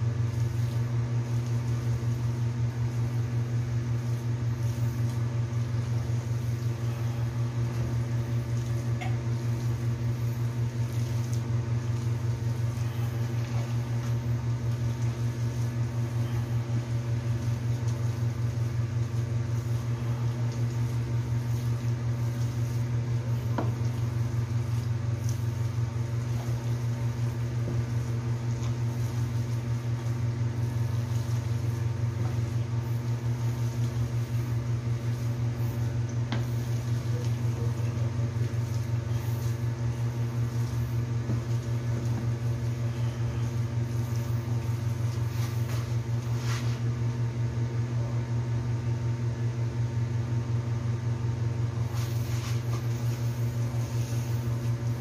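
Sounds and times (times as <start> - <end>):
low electrical hum: 0.0 - 55.0.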